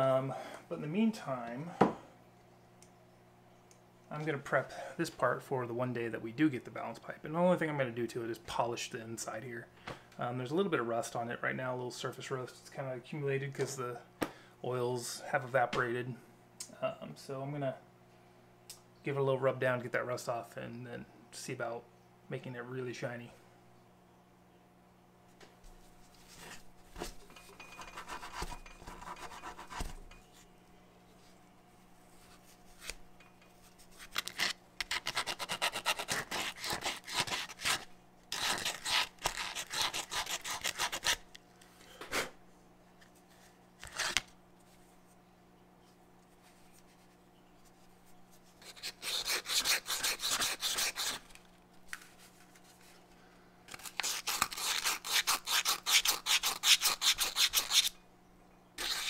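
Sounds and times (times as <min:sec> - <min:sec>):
scratchy rubbing on metal: 0:27.7 - 0:29.9, 0:33.8 - 0:41.2, 0:48.6 - 0:51.3, 0:53.8 - 0:57.9, 0:58.8 - 0:59.0.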